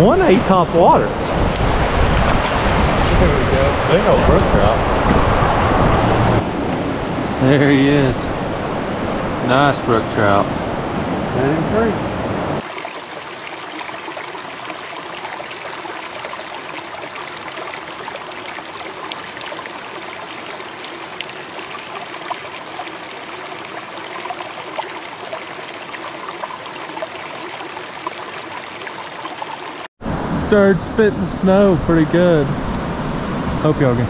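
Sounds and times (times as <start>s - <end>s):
small water splashes and ticks: 12.6s - 29.9s.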